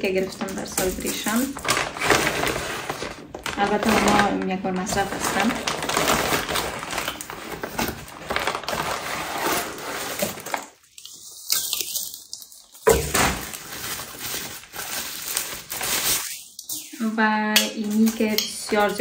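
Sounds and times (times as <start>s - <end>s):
plastic packaging crinkling: 0.0s - 19.0s.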